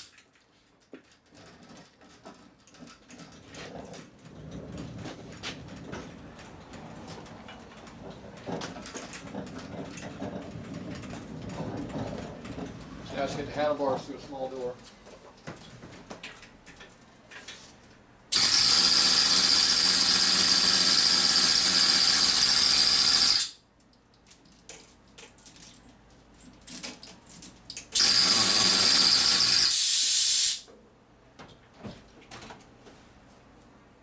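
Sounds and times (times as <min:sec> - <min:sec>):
air hoist hissing exhaust: 0:18.3 - 0:23.6, 0:28.0 - 0:30.7.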